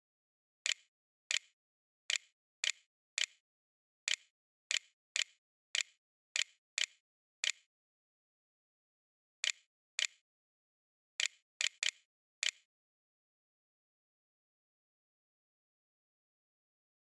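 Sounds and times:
mouse clicks: 0.6s - 3.4s, 4.1s - 7.7s, 9.4s - 10.2s, 11.2s - 12.7s.

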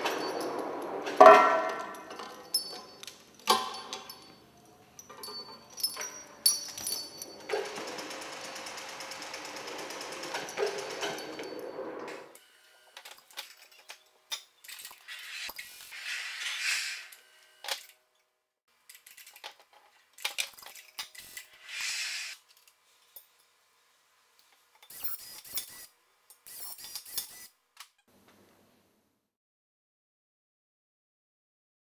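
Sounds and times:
clinks knocks and rustling: 0.0s - 7.9s, 10.2s - 11.7s.

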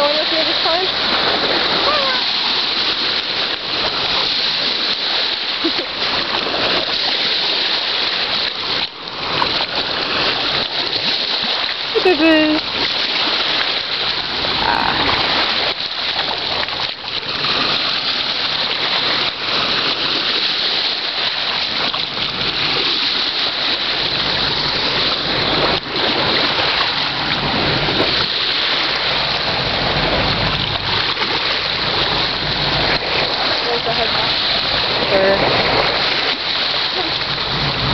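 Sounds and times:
small waves lapping on stones: 0.0s - 37.9s
low rumble: 29.0s - 36.0s, 37.0s - 37.9s.

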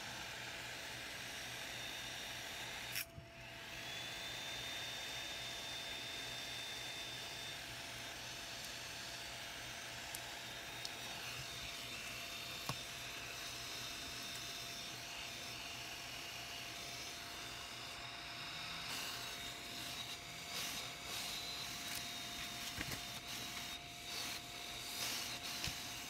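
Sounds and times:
hands handling plastic packaging: 21.8s - 23.7s.

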